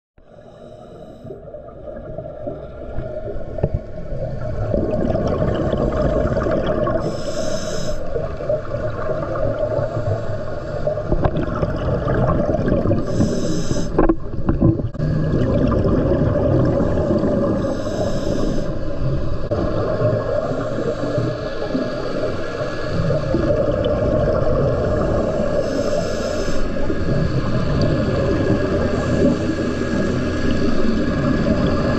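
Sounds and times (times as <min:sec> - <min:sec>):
underwater bubbling rumble: 0:01.2 - 0:31.9
hissing regulator inhalation: 0:05.4 - 0:08.6, 0:09.6 - 0:11.3, 0:12.9 - 0:14.2, 0:16.6 - 0:23.8, 0:24.7 - 0:31.6.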